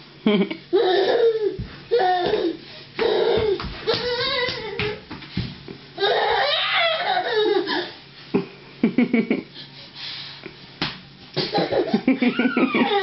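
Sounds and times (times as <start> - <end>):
person laughing: 0.2 - 0.6, 8.3 - 9.5, 11.4 - 13.0.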